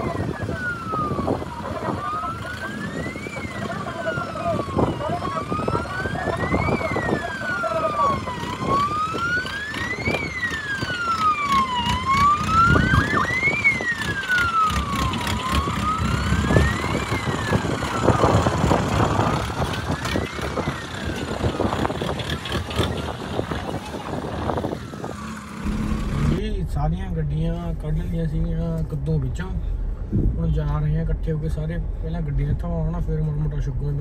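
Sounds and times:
siren wailing: 0.0s - 26.5s
vehicle noise: 0.0s - 34.0s.

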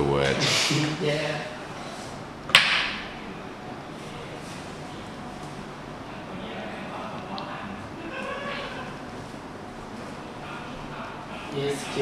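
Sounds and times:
room hum: 0.0s - 12.0s
faint indistinct voices: 3.0s - 12.0s.

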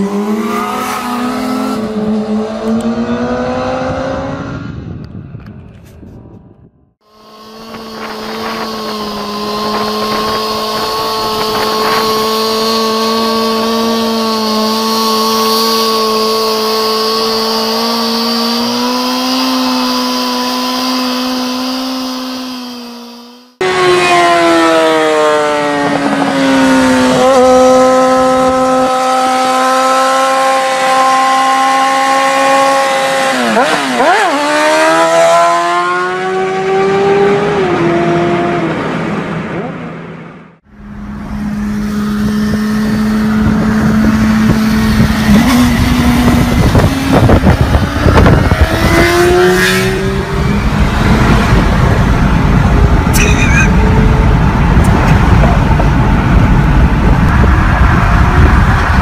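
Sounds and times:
motorcycle engine revving: 0.0s - 5.0s, 7.0s - 39.9s, 40.5s - 59.0s
second motorcycle engine running hard: 7.0s - 38.6s, 40.7s - 59.0s.

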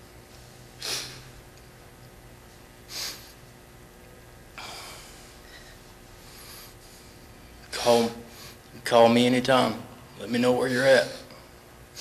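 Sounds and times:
person sniffing: 0.8s - 1.3s, 2.9s - 3.4s
person breathing: 4.6s - 7.4s.

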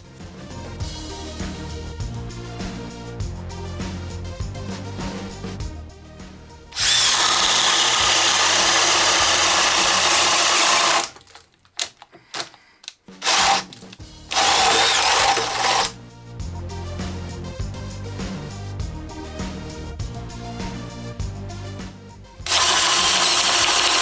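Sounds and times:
background music: 0.0s - 11.2s, 13.0s - 24.0s
cordless drill boring into wood: 6.8s - 11.2s, 13.2s - 15.9s, 22.5s - 24.0s.

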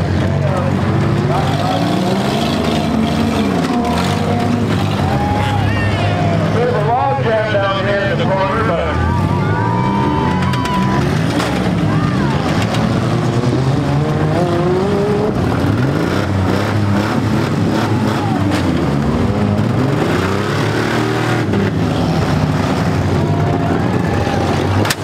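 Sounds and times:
car engines revving: 0.0s - 25.0s
cars crunching together: 0.6s - 8.8s, 9.6s - 14.4s, 21.6s - 25.0s.

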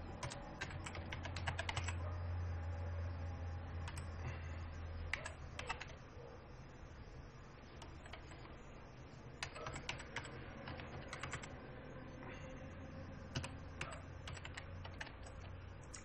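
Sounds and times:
faint low hum: 0.0s - 16.0s
typing on computer keyboard: 0.1s - 2.0s, 3.8s - 4.2s, 5.1s - 6.0s, 7.7s - 8.6s, 9.4s - 11.6s, 13.3s - 16.0s.

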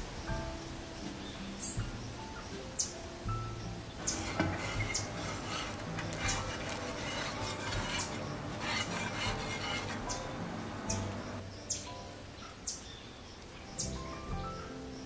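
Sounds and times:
spatula scraping metal griddle: 4.0s - 11.4s.

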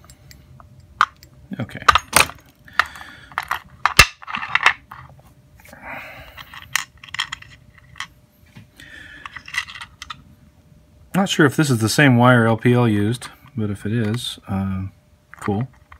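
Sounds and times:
metal parts clinking on wood: 0.0s - 5.1s, 6.4s - 8.1s, 9.2s - 10.2s.

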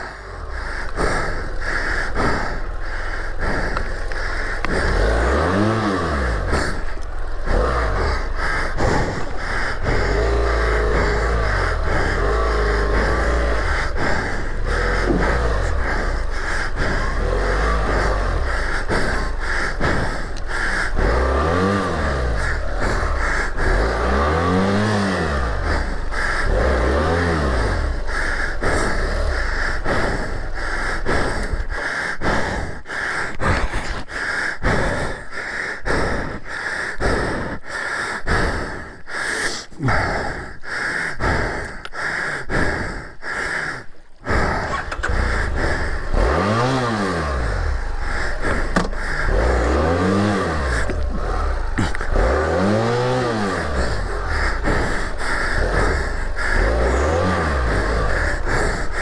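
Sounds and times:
motorcycle engine revving: 0.0s - 39.1s, 44.2s - 59.0s
choppy rough noise: 0.0s - 59.0s.

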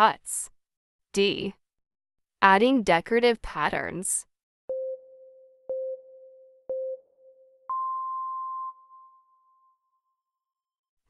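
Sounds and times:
short low countdown beeps: 4.7s - 9.0s
long high beep: 4.7s - 9.8s.

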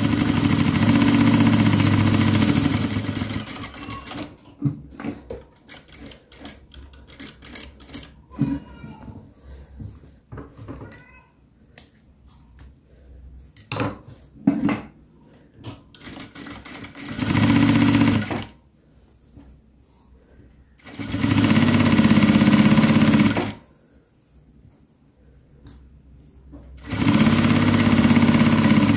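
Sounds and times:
sewing machine stitching: 0.0s - 4.4s, 16.0s - 18.6s, 20.8s - 23.6s, 26.8s - 28.9s.

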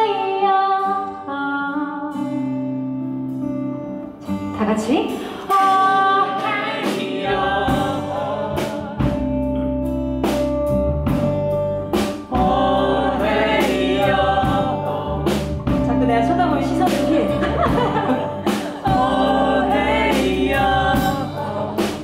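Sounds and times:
woman singing: 0.0s - 2.4s, 4.8s - 9.3s, 15.8s - 22.0s
acoustic guitar: 0.0s - 22.0s
drums and cymbal hits: 6.4s - 9.5s, 10.2s - 16.1s, 16.8s - 22.0s
electric bass: 7.3s - 22.0s.

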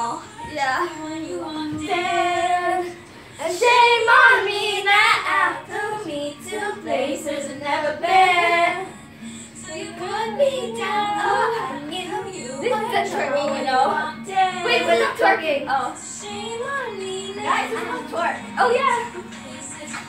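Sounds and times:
girls singing: 0.0s - 20.0s.

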